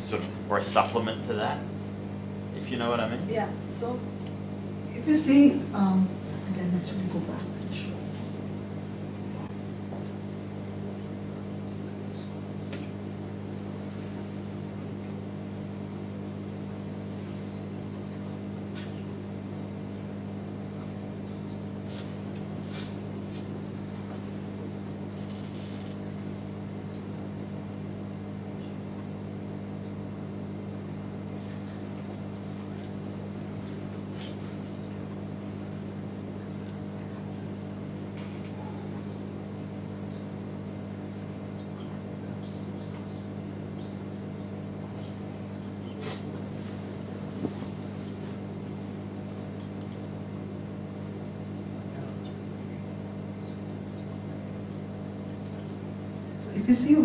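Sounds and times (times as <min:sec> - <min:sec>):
low mechanical hum: 0:00.0 - 0:57.0.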